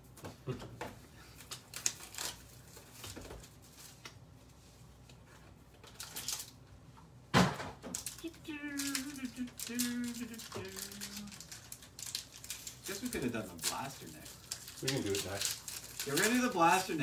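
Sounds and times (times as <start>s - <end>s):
card pack rustling: 5.8s - 6.6s, 7.9s - 17.0s.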